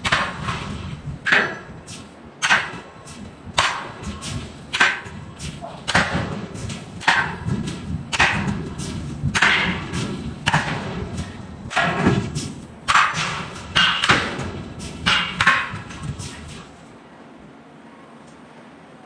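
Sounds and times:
forging hammer striking steel: 0.0s - 16.6s
low machinery rumble: 0.0s - 19.0s.

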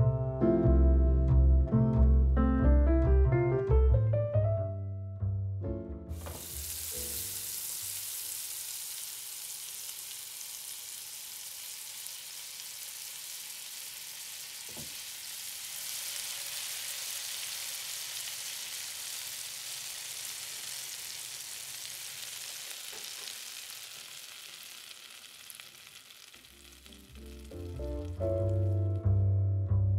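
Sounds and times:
background music: 0.0s - 6.2s, 26.9s - 29.9s
meat deep-frying in oil: 6.1s - 29.0s.

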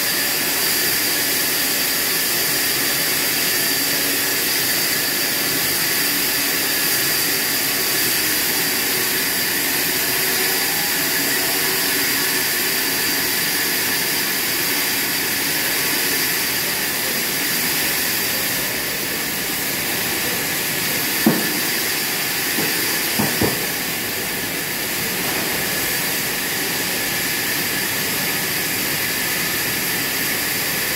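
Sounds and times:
band sawmill sawing a log: 0.0s - 24.8s
short sharp knocks: 21.2s - 21.6s, 22.6s - 23.6s.

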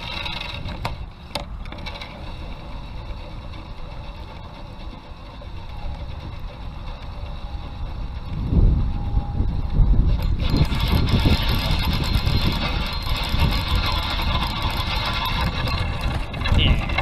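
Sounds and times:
fishing reel cranking: 0.0s - 17.0s
wind on microphone: 5.5s - 17.0s.

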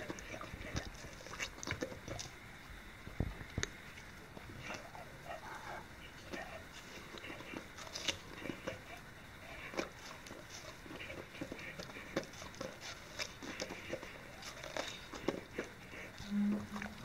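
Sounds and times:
dog chewing watermelon: 0.0s - 17.0s.

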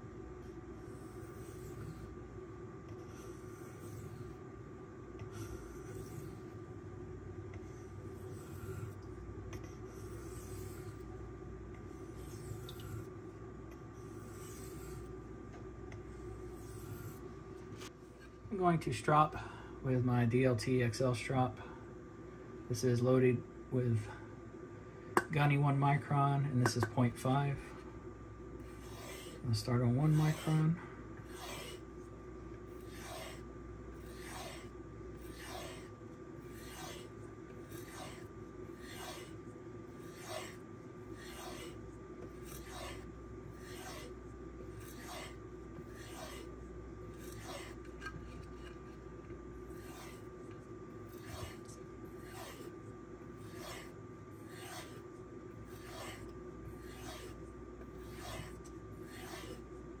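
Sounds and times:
knife stropped on leather: 28.7s - 29.4s, 30.0s - 30.6s, 31.3s - 31.8s, 34.0s - 39.4s, 40.0s - 40.6s, 41.2s - 43.0s, 43.6s - 44.1s, 44.8s - 46.5s, 49.7s - 50.2s, 51.1s - 52.7s, 53.4s - 55.0s, 55.6s - 57.4s, 58.0s - 59.6s.

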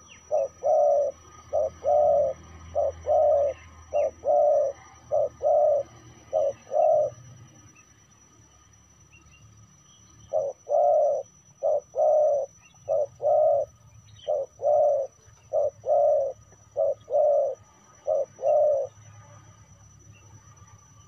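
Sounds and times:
dove cooing: 0.0s - 7.6s, 10.2s - 19.1s.

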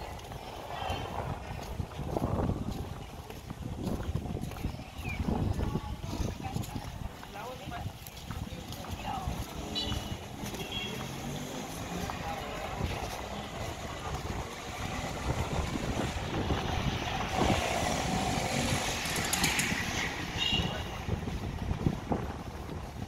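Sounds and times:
street traffic noise: 0.0s - 23.0s
motorcycle engine: 13.5s - 20.6s.

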